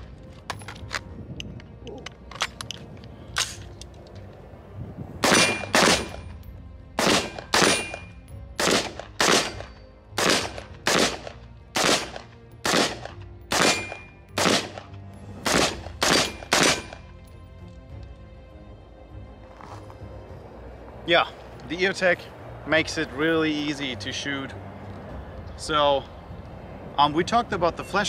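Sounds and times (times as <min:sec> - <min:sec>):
rifle shots: 0:05.2 - 0:06.2, 0:07.0 - 0:17.0.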